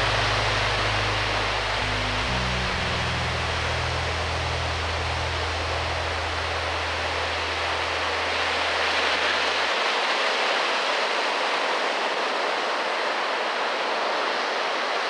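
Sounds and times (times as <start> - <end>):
low held music tone: 0.0 - 10.5.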